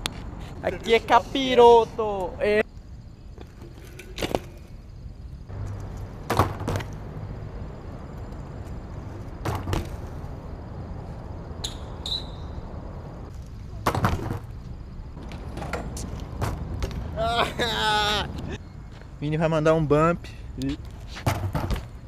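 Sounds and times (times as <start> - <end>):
bike tyres rolling on concrete: 0.0 - 22.0
sharp knocks from bike: 5.7 - 7.0, 9.4 - 10.1, 13.8 - 14.6, 21.2 - 22.0.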